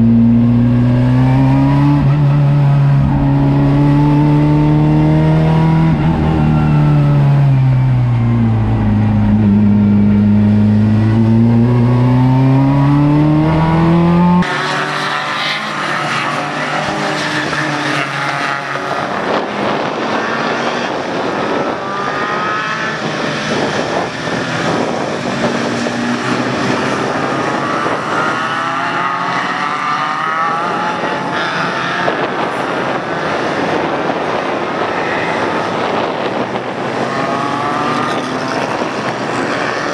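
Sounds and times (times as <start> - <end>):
racing cars passing on wet track: 14.5 - 39.9.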